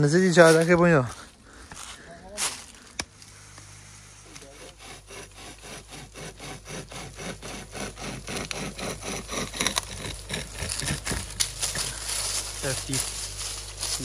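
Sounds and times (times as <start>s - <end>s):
hand saw cutting wood: 4.2s - 12.2s.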